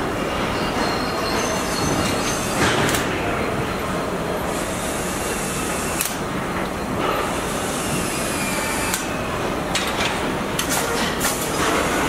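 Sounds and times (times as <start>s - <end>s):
mechanical din of machinery: 0.3s - 3.3s.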